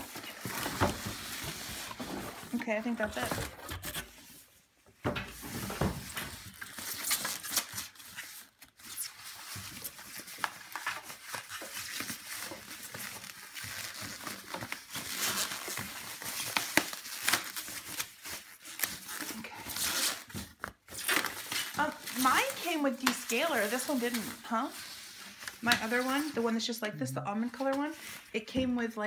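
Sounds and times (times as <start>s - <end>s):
plastic wrapping bag crinkling: 6.2s - 26.6s.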